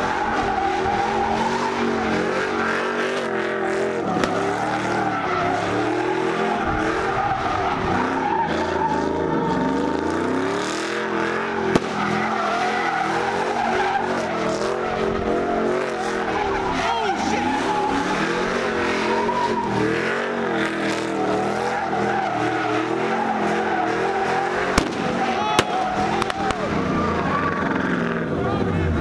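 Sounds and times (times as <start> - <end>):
tires squealing: 0.0 - 29.0
truck engine revving: 0.0 - 29.0
sharp crack: 4.2 - 4.5, 11.6 - 12.3, 24.7 - 26.7.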